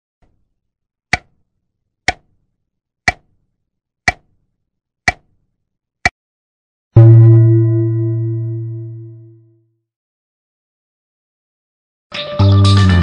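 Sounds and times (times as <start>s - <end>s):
clock ticking: 1.1s - 1.4s, 2.1s - 2.4s, 3.1s - 3.4s, 4.1s - 4.4s, 5.1s - 5.4s.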